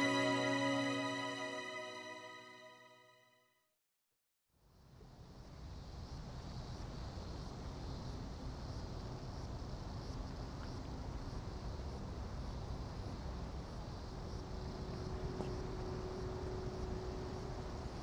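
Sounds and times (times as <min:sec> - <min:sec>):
high insect chirp: 0:05.8 - 0:18.0.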